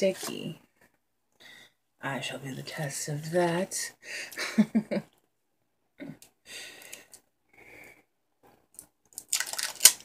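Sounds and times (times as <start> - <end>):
breaths: 1.4 - 1.8, 4.0 - 4.4, 6.4 - 8.1.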